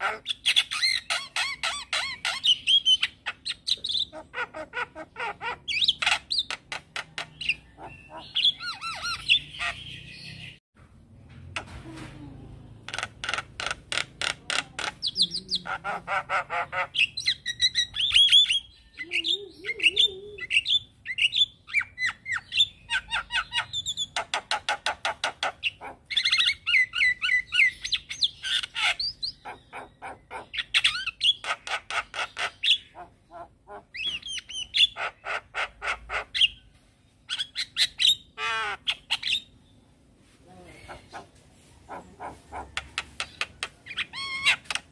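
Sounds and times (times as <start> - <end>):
myna bird singing: 0.0 - 10.6, 11.6 - 44.9.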